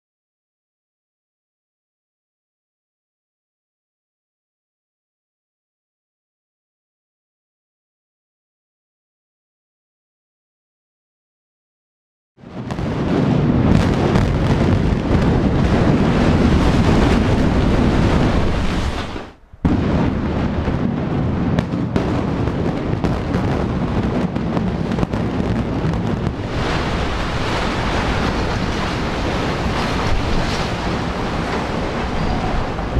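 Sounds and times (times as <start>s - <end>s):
wind on microphone: 12.4s - 32.9s
concrete buildings collapsing: 12.5s - 32.9s.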